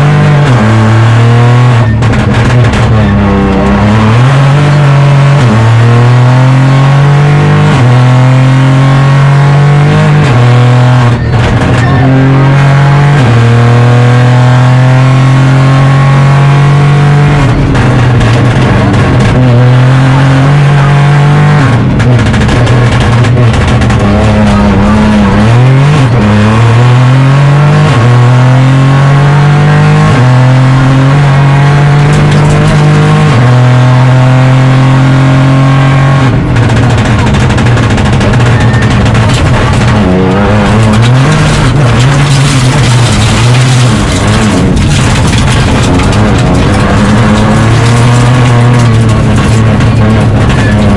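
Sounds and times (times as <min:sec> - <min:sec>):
car engine revving with gear changes: 0:00.0 - 0:50.9.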